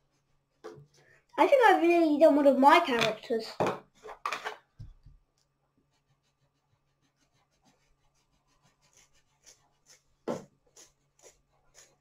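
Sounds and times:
coloured pencil scratching on paper: 5.8s - 12.0s.

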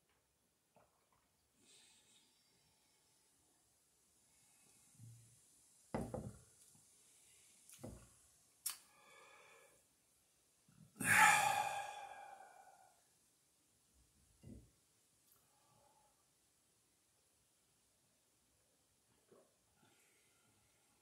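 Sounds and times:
man sighing loudly: 11.0s - 12.8s.

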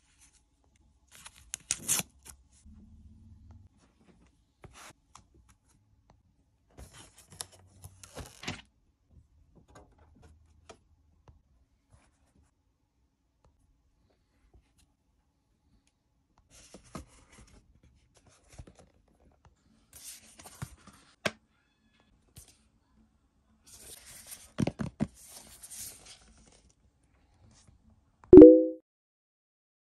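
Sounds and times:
loud pitched tone: 28.4s - 28.8s.

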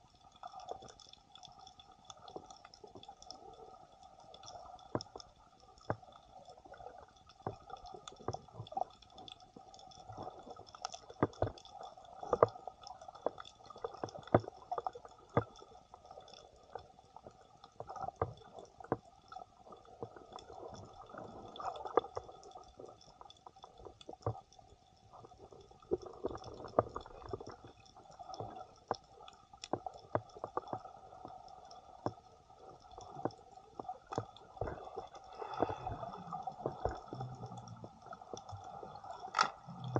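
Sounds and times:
muffled underwater crackling clicks: 0.0s - 39.9s
dull sloshing of water: 33.0s - 39.9s.

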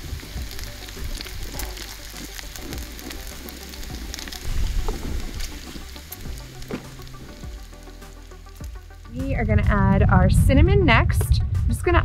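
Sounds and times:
bacon sizzling on griddle: 0.0s - 9.1s
low rumble: 0.0s - 12.0s.

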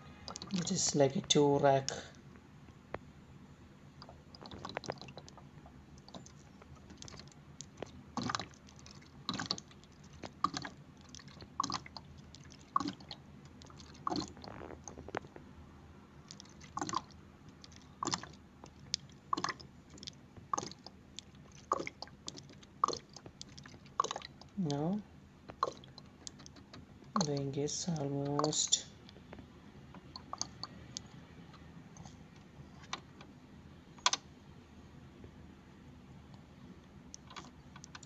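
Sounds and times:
ink gurgling into tank: 8.2s - 14.9s, 16.4s - 18.4s, 19.3s - 19.7s, 20.5s - 24.6s, 25.5s - 26.4s.

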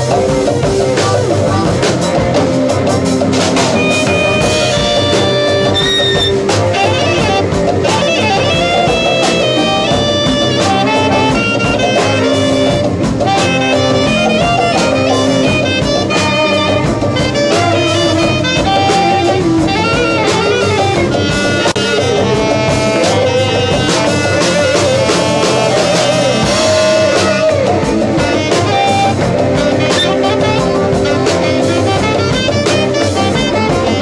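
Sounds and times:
drum kit: 0.0s - 34.0s
saxophone melody: 0.0s - 34.0s.

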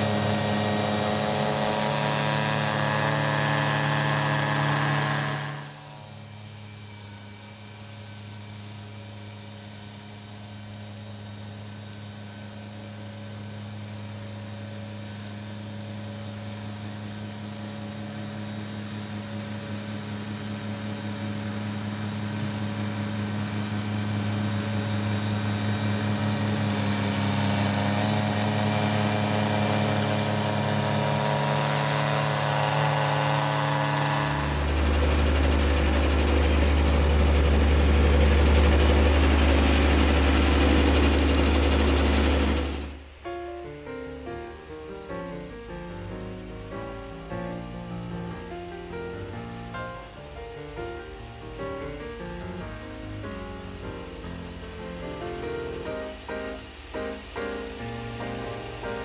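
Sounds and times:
tractor diesel engine under load: 0.0s - 6.3s, 19.8s - 43.2s.

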